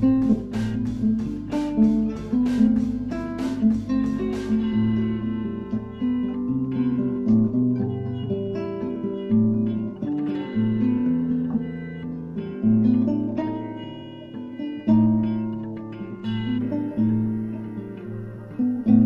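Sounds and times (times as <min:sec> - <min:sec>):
sharp regular beat: 0:00.0 - 0:07.8
bass notes: 0:00.0 - 0:19.0
plucked guitar music: 0:00.0 - 0:19.0.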